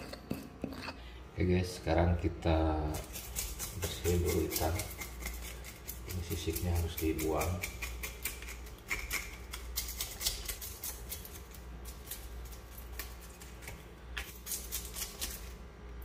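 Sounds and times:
knife scraping fish scales: 2.9s - 15.6s.

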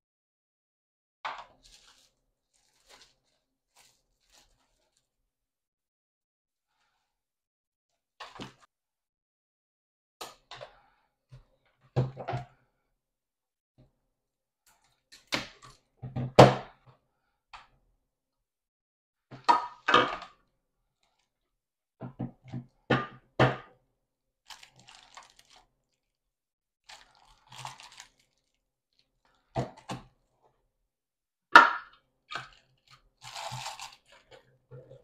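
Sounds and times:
packaging rustling: 1.6s - 5.1s, 24.5s - 25.6s, 26.9s - 28.6s, 33.2s - 34.2s.

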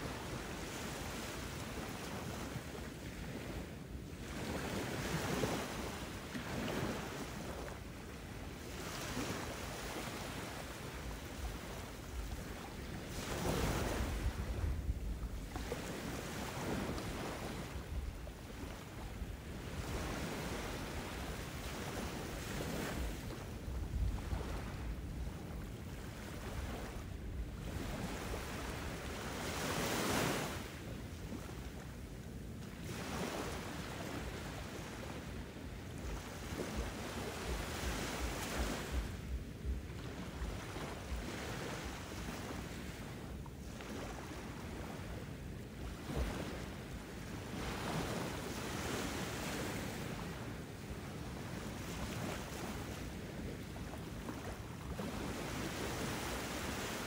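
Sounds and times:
low wind rumble: 13.6s - 15.5s.

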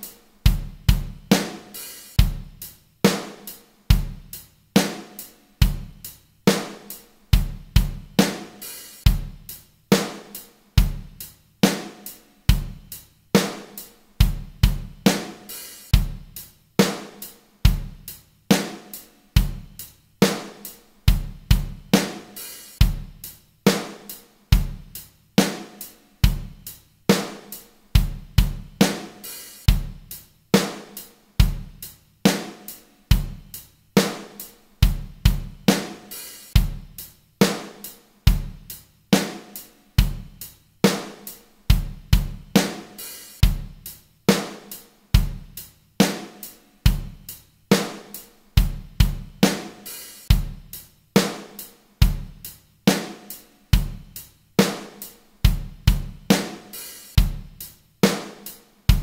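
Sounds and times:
drum kit loop: 0.0s - 59.0s.

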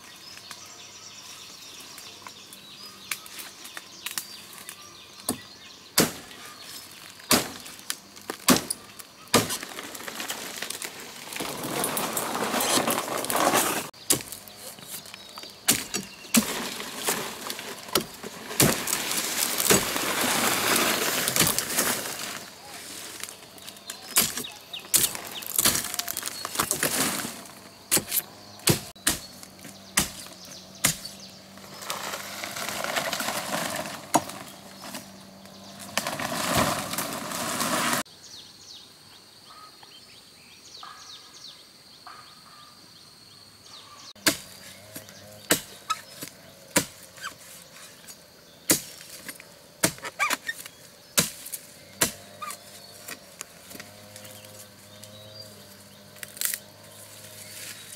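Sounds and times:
rustling: 6.3s - 28.2s, 31.5s - 38.0s.

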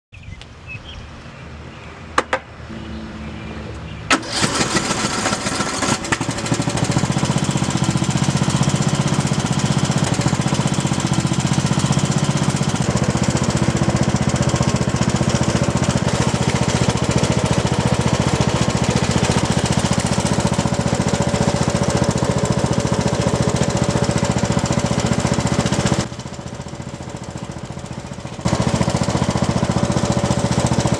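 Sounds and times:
lawn mower engine running: 4.1s - 30.9s.

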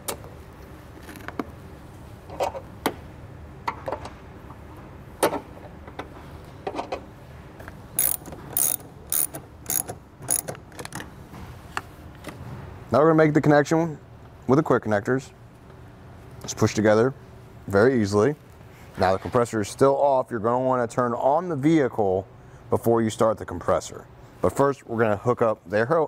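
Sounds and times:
wrench clicking: 8.0s - 11.0s.

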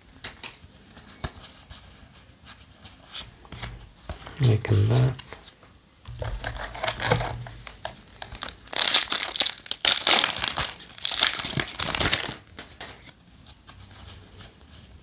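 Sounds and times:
foil wrapper crinkling and tearing: 6.2s - 13.2s.

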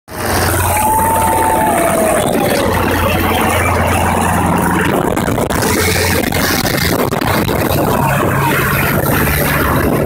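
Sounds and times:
broad rushing noise: 0.1s - 10.0s
helicopter rotor and engine hum: 0.1s - 10.0s.

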